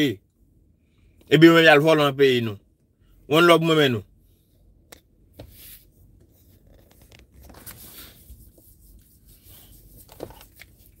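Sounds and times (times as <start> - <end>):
hand rubbing on phone: 5.4 - 11.0.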